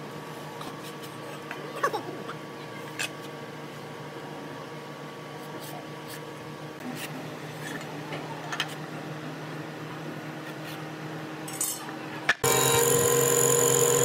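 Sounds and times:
steady machine hum: 0.0 - 14.0
woodworking machine whining: 12.4 - 14.0.

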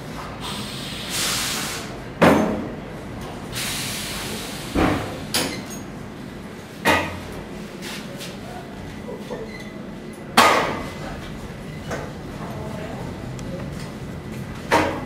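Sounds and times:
pneumatic hissing: 0.4 - 2.0, 3.5 - 5.7.

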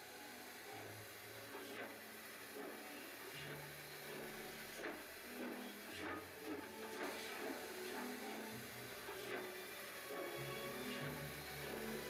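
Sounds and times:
faint background music: 0.0 - 12.0
steam locomotive exhaust puffs: 0.0 - 12.0.

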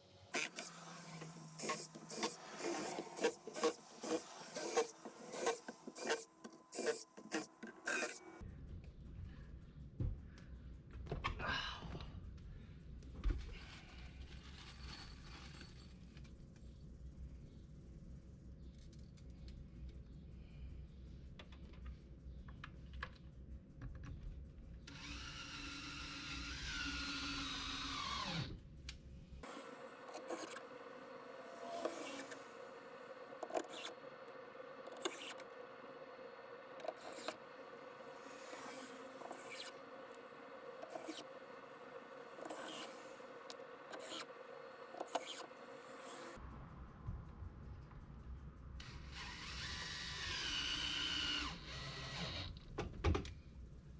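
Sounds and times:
cordless drill whining: 0.4 - 8.2, 24.9 - 28.5, 29.4 - 46.4, 49.1 - 52.6.

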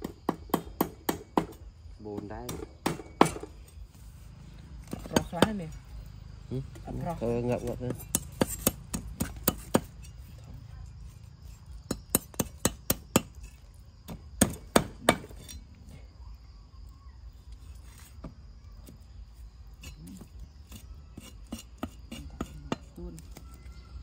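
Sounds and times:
knife chopping on wooden board: 7.9 - 9.9.

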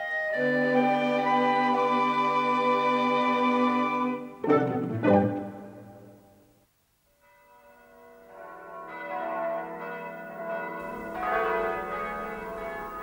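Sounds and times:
church bells ringing: 7.2 - 13.0.

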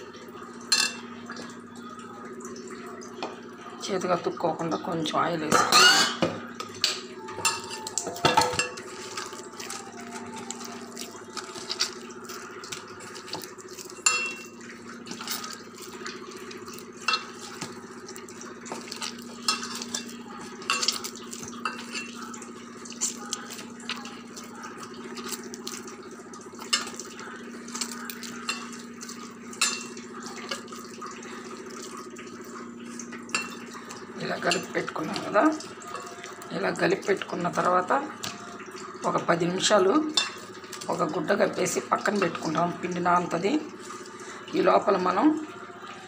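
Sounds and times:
knocks and clinks on metal bowl: 5.5 - 8.8.

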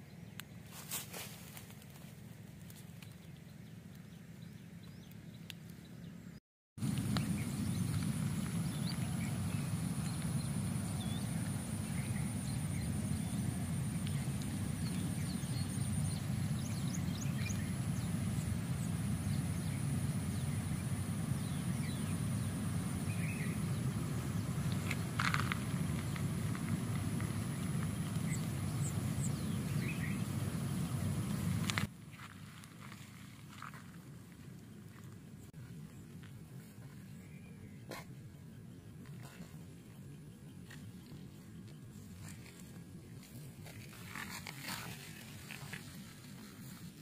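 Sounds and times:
high insect trill: 6.8 - 31.9
wind rumbling on microphone: 6.8 - 35.0.

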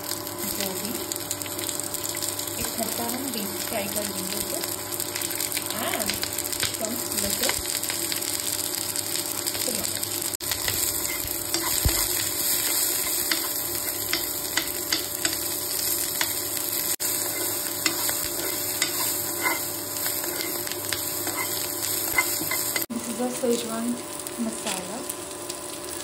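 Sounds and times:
vegetables sizzling in oil: 0.0 - 26.0
spoon scraping a pan: 10.6 - 16.4, 17.0 - 22.9.

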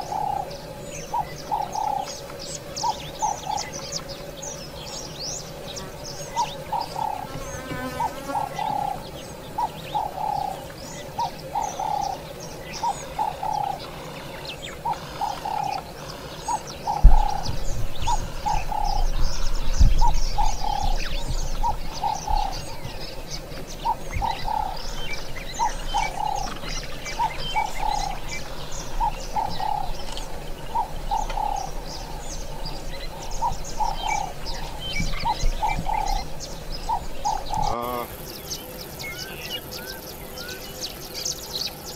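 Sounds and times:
low bird call: 0.0 - 41.9.

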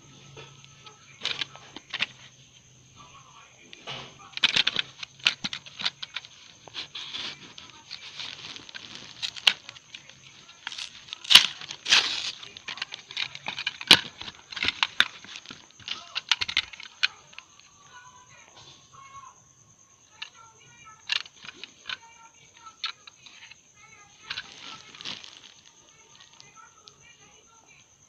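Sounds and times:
plastic crinkling: 0.4 - 2.3, 3.8 - 17.9, 20.1 - 27.4
card tearing: 4.4 - 17.4, 24.2 - 26.5.

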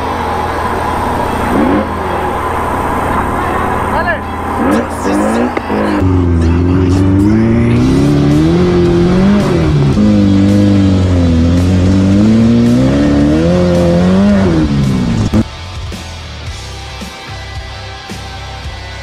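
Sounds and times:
race car engine revving: 0.0 - 15.5.

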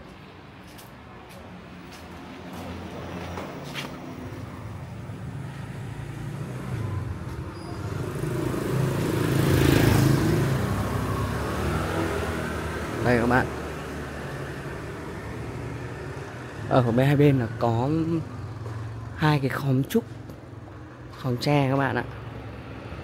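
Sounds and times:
vehicle engine passing by: 2.4 - 19.5.

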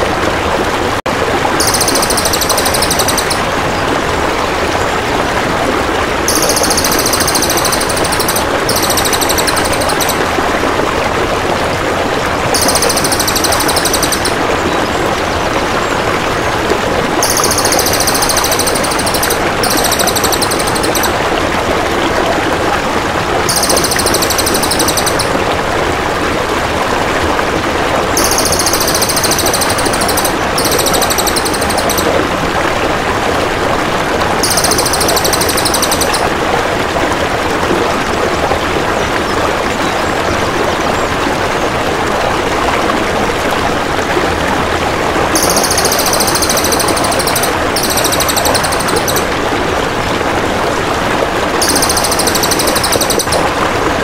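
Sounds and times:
flowing water: 0.0 - 54.0
bird buzzing trills: 1.6 - 3.4, 6.3 - 10.2, 12.6 - 14.4, 17.2 - 21.1, 23.5 - 25.3, 28.2 - 32.0, 34.4 - 36.2, 45.4 - 49.2, 51.6 - 53.4.

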